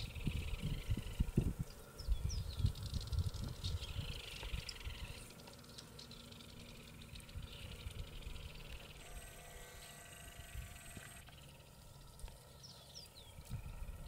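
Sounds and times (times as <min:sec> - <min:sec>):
wind rumble on microphone: 0:00.0 - 0:05.3, 0:07.1 - 0:09.0, 0:13.0 - 0:14.0
swallows chirping: 0:00.0 - 0:14.0
faint steady high tone: 0:06.0 - 0:14.0.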